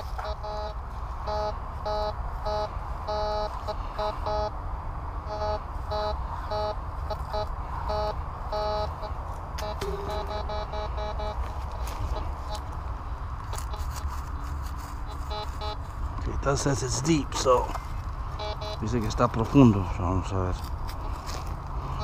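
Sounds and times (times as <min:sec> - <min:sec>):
metal detector beeping: 0:00.0 - 0:04.5, 0:05.3 - 0:12.8, 0:13.5 - 0:14.0, 0:15.0 - 0:15.9, 0:18.3 - 0:19.4.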